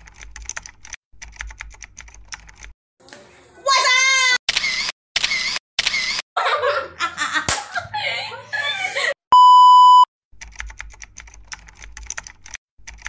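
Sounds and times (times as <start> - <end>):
girls laughing and chattering: 6.4 - 9.2
test-pattern beep: 9.3 - 10.1.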